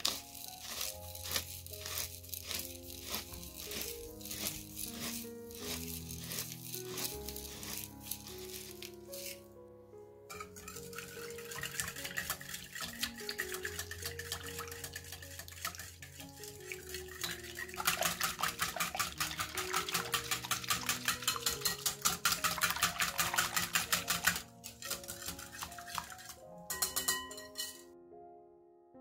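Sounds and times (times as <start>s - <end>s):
metal utensil beating a bowl: 0.0s - 9.4s, 10.3s - 27.9s
background piano music: 0.0s - 29.0s
light clinks and scrapes: 10.3s - 16.6s, 20.3s - 22.1s.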